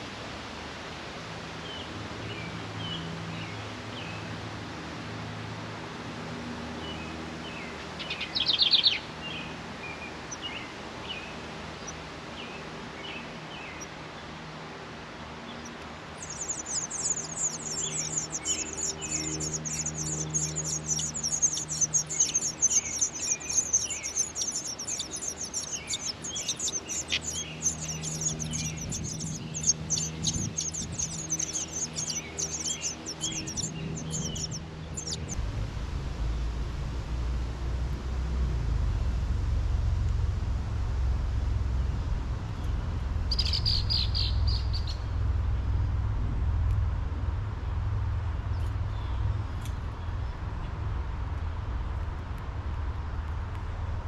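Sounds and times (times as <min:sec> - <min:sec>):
songbirds chirping: 0:06.4 - 0:35.4, 0:37.3 - 0:45.8.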